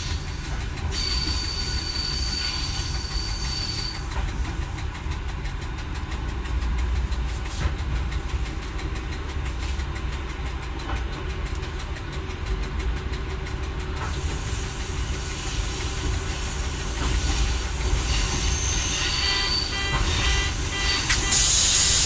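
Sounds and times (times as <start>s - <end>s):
high wheel squeal: 0.0s - 4.8s, 14.1s - 22.0s
rail clicks: 0.0s - 22.0s
railcar engine and wheels rumbling: 0.0s - 22.0s.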